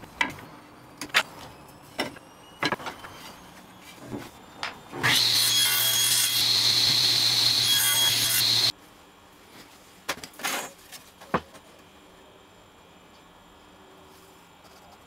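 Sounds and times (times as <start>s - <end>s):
table saw cutting wood: 4.9s - 8.7s.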